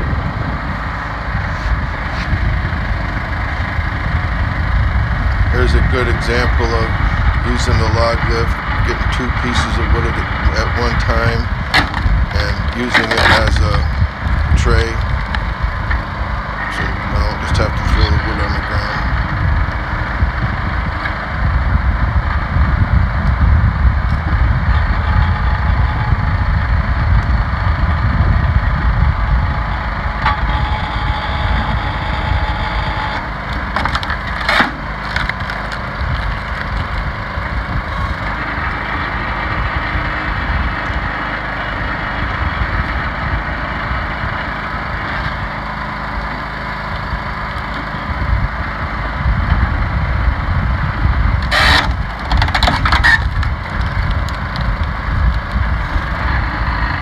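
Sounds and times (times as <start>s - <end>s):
log splitter engine running: 0.0s - 57.0s
wood creaking and splitting: 7.4s - 16.1s, 29.6s - 40.0s, 51.4s - 57.0s
sharp wood cracks: 11.7s - 12.1s, 33.0s - 38.3s, 51.4s - 56.1s.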